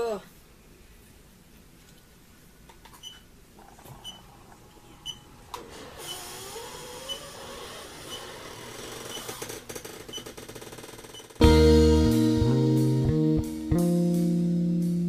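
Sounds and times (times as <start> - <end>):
massage chair motor whirring: 5.5 - 11.4
loud guitar and bass music: 11.4 - 15.0.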